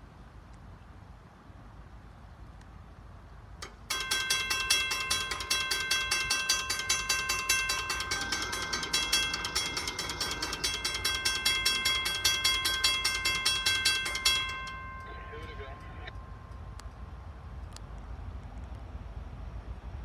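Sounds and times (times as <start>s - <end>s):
railroad crossing bell ringing: 3.6s - 17.6s.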